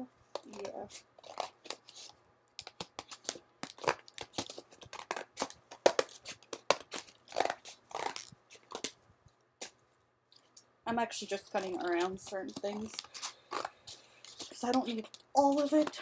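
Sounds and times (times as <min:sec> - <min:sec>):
scissors cutting cardboard: 0:00.4 - 0:09.0.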